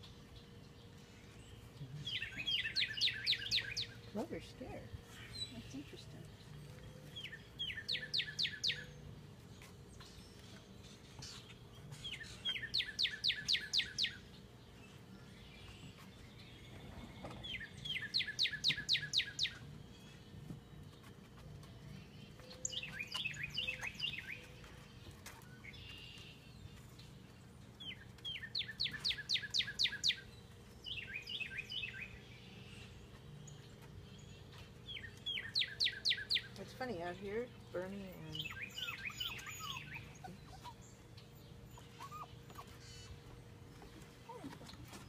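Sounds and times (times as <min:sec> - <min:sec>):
songbird whistling: 0:17.5 - 0:19.6, 0:27.9 - 0:30.2, 0:38.4 - 0:40.8.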